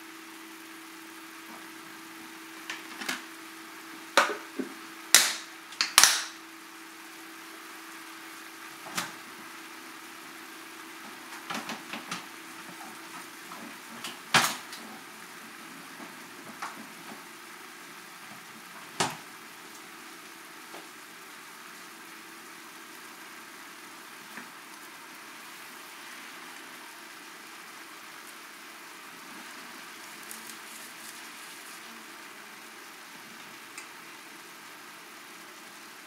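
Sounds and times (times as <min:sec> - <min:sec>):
food sizzling in a skillet: 0:00.0 - 0:05.7, 0:06.3 - 0:11.4, 0:12.2 - 0:36.0
crackles and pops: 0:00.4 - 0:36.0.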